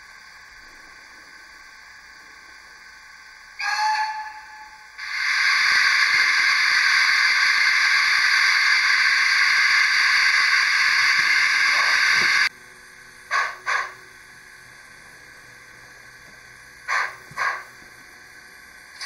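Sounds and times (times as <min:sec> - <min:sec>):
steam locomotive chuffs: 0:03.5 - 0:12.5, 0:13.3 - 0:14.1, 0:16.8 - 0:17.9
loud steam hiss: 0:05.0 - 0:12.5.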